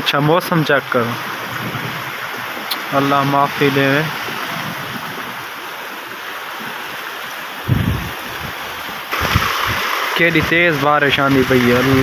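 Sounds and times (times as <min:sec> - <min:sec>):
heavy rain pouring: 0:00.1 - 0:12.0
low thumps: 0:07.7 - 0:09.9.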